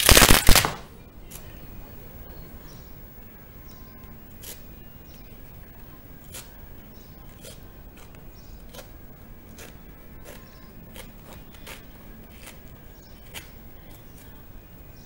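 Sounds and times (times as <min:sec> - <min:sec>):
scissors snipping suede: 0:07.3 - 0:12.6, 0:13.2 - 0:14.3.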